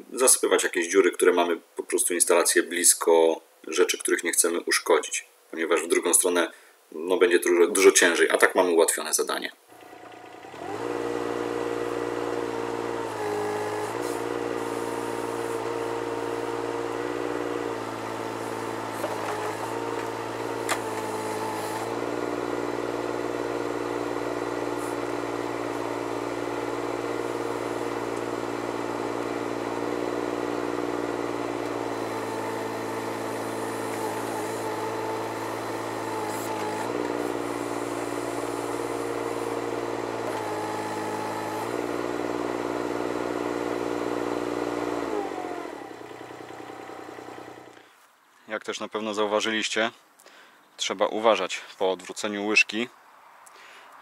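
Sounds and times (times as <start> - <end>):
excavator diesel engine running: 9.7 - 47.8
faint hydraulic whine: 9.7 - 48.1.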